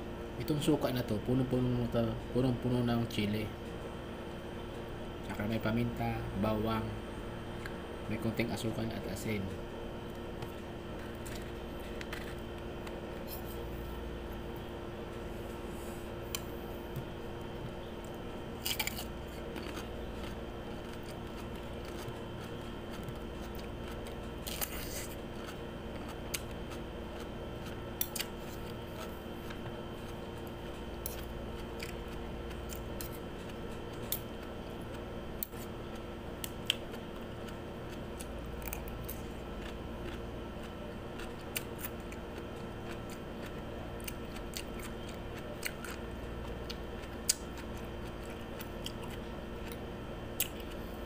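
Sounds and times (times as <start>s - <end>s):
cucumber crunching: 10.1s - 14.5s, 17.4s - 50.8s.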